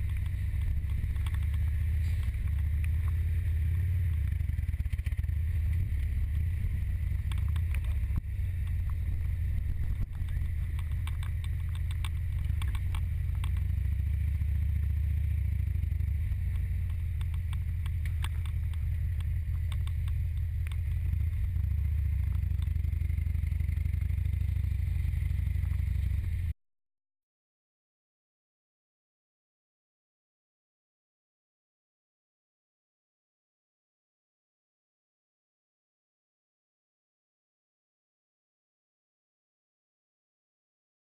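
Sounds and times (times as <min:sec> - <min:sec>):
light clicks and rattles: 0:00.0 - 0:03.2, 0:10.0 - 0:13.7, 0:16.5 - 0:20.9
motorcycle engine running: 0:00.0 - 0:26.5.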